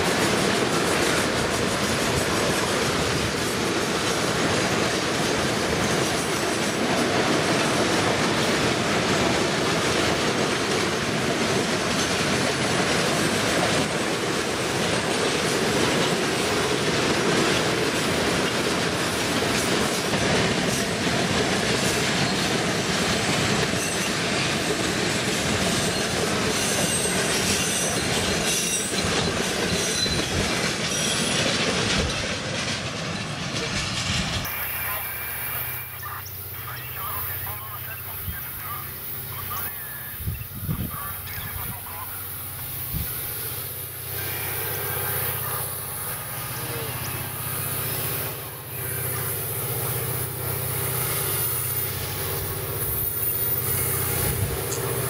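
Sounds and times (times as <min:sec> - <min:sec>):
train wheels rumbling on rails: 0:00.0 - 0:55.0
high wheel squeals: 0:23.7 - 0:24.2, 0:25.7 - 0:31.5, 0:42.4 - 0:55.0.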